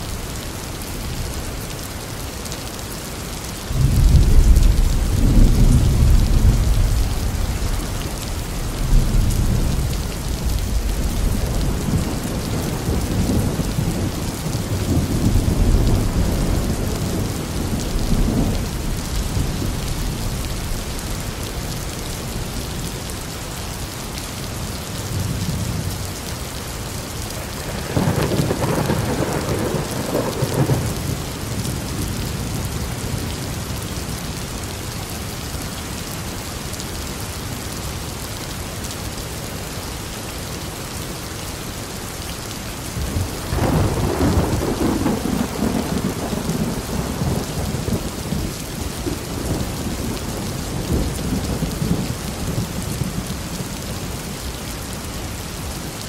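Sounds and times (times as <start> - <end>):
steady rain: 0.0 - 56.0
thunder rolling: 27.6 - 31.0.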